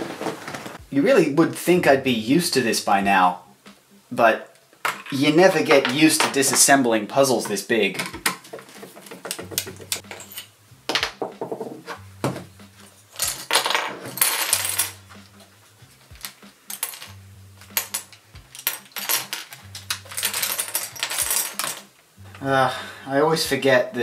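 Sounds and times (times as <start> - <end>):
plastic pieces rattling: 16.1 - 21.9.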